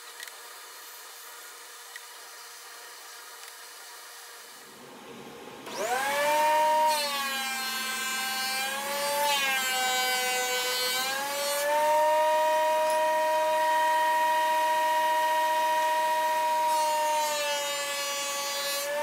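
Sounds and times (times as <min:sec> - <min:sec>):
planer motor whining: 0:04.9 - 0:19.0.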